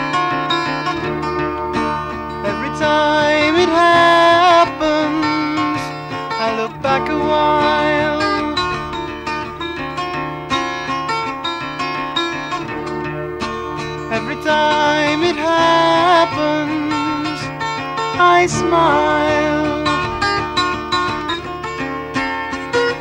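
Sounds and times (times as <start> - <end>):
picked acoustic guitar: 0.0 - 23.0
wavering lead line: 6.6 - 11.1, 12.6 - 23.0.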